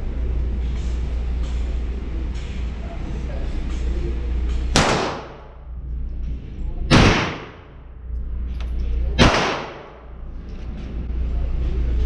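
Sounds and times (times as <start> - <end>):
steady low hum: 0.0 - 12.0
rifle shots echoing: 4.7 - 5.5, 6.9 - 7.8, 9.2 - 10.1.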